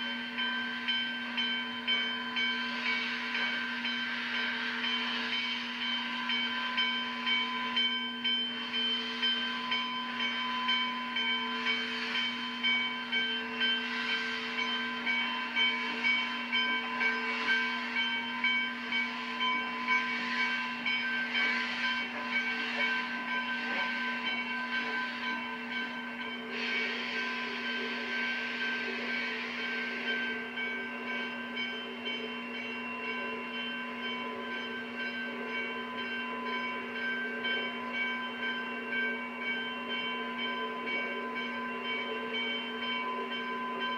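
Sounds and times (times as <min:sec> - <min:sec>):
steam locomotive hissing: 0:00.0 - 0:43.9.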